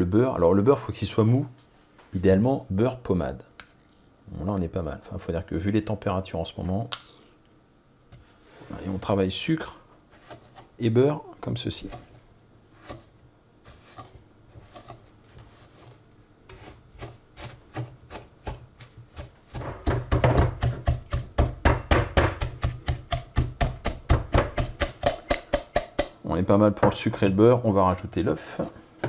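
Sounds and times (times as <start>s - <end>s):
whisk scraping a glass bowl: 15.6s - 19.3s.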